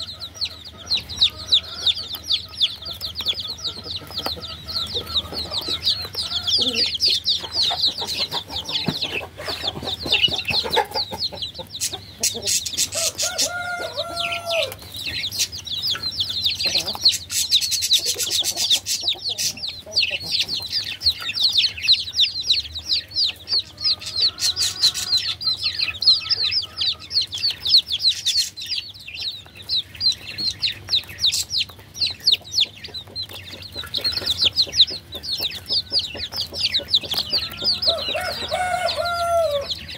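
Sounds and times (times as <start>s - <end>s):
baby chicks peeping: 0.0s - 39.9s.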